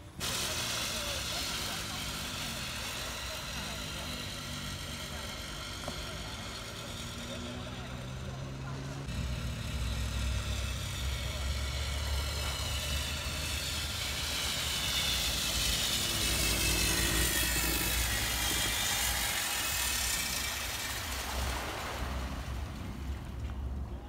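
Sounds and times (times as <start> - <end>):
wakeboard spray hissing: 0.0 - 23.4
low mechanical hum: 0.0 - 24.0.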